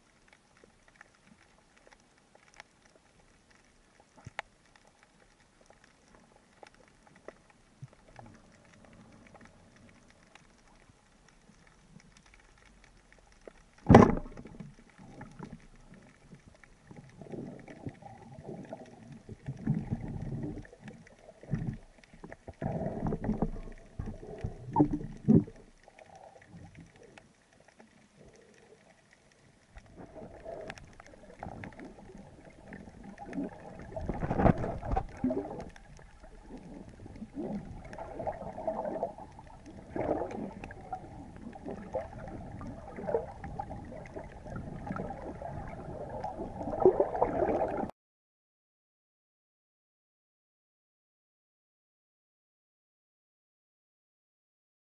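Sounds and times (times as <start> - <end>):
rumbling underwater noise: 0.0 - 47.9
sharp underwater knock: 13.9 - 14.4.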